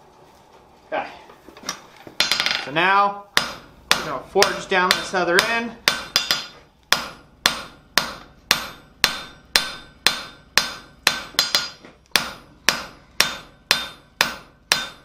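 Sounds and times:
hammer striking steel on anvil: 0:03.3 - 0:15.0.

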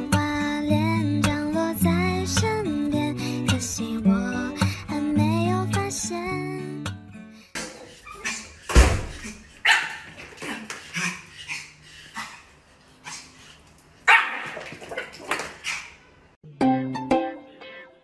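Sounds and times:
dull thump: 0:08.7 - 0:09.2
small dog barking: 0:09.6 - 0:10.1, 0:14.1 - 0:15.1.

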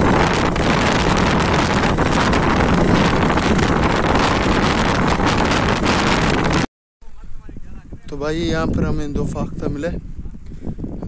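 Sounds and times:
motorcycle engine: 0:00.0 - 0:06.7
wind buffeting microphone: 0:00.0 - 0:11.0.

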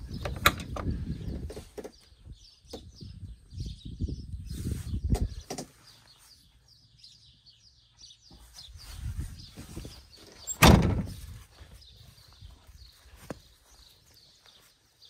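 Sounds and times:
birds chirping: 0:00.0 - 0:15.0
footsteps: 0:08.3 - 0:15.0
vehicle door slamming: 0:10.5 - 0:11.1.

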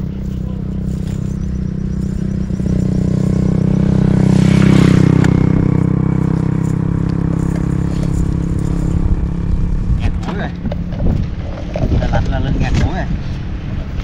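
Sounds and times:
small boat engine running: 0:00.0 - 0:10.0.

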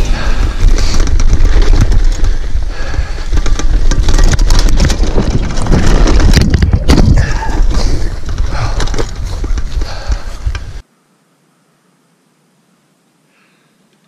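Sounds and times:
bike rattling over rough trail: 0:00.0 - 0:10.8.

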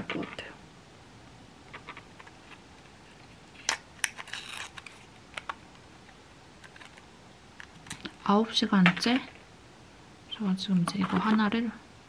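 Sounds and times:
foil crinkle: 0:03.6 - 0:05.1.

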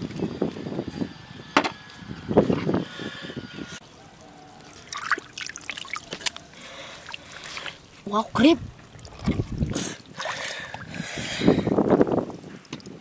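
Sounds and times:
water trickling among rocks: 0:04.6 - 0:13.0.

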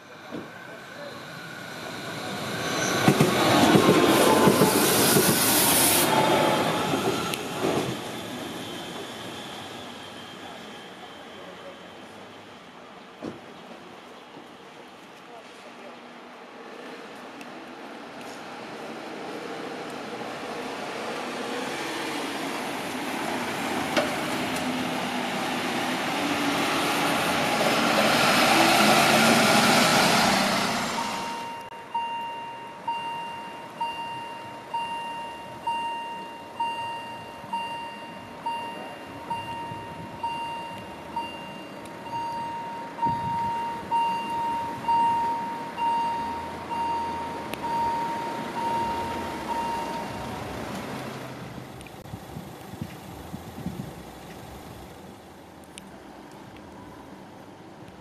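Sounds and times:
passing vehicle rush: 0:18.6 - 0:31.5
level crossing bell ringing: 0:31.2 - 0:50.3.

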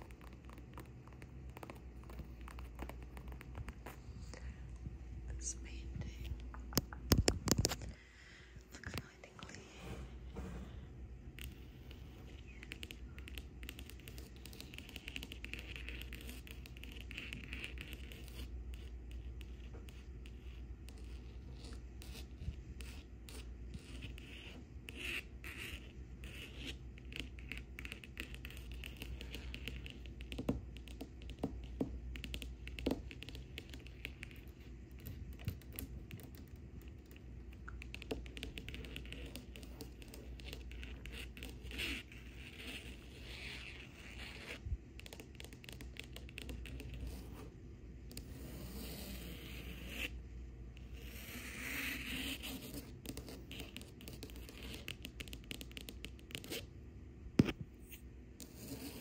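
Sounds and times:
fingernails scratching canvas: 0:37.8 - 0:47.5, 0:48.1 - 0:50.2, 0:50.8 - 0:56.7, 0:58.4 - 0:59.0.

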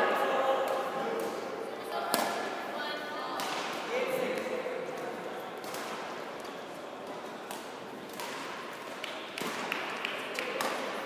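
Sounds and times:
sports hall hum: 0:00.0 - 0:11.0
racket hitting shuttlecock: 0:00.6 - 0:02.5, 0:03.4 - 0:06.2, 0:07.0 - 0:11.0.

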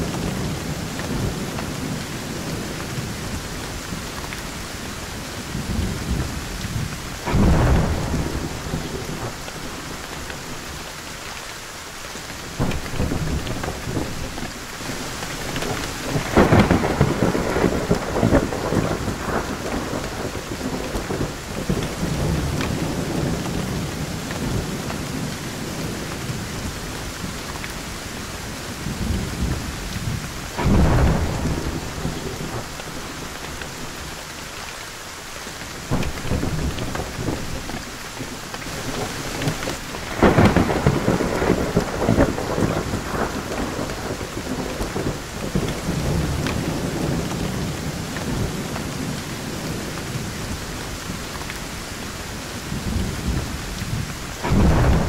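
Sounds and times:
heavy rain: 0:00.0 - 0:55.0
thunder: 0:05.6 - 0:10.5, 0:14.9 - 0:26.5, 0:28.8 - 0:33.9, 0:38.7 - 0:51.2, 0:52.6 - 0:55.0.

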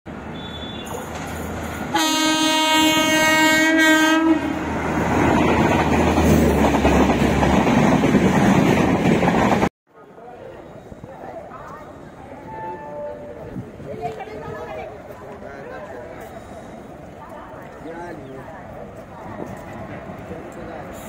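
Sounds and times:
train wheels on rails: 0:00.3 - 0:03.2, 0:04.4 - 0:09.7, 0:13.2 - 0:21.0
locomotive horn blast: 0:01.9 - 0:04.7.

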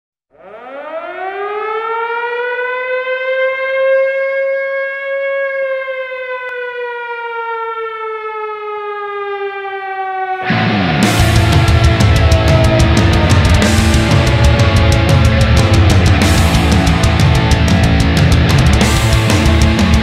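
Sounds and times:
air-raid siren wailing: 0:00.3 - 0:20.0
loud music: 0:10.4 - 0:20.0.

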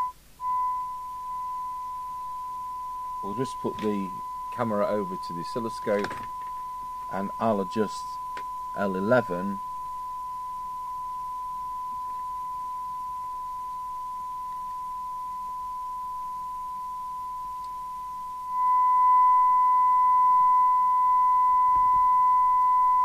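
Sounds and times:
faint higher tone: 0:00.0 - 0:23.0
radio test tone: 0:00.0 - 0:23.0.

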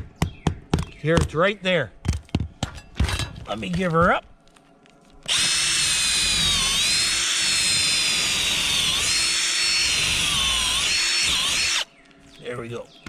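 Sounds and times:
cordless drill whining: 0:05.3 - 0:11.9.

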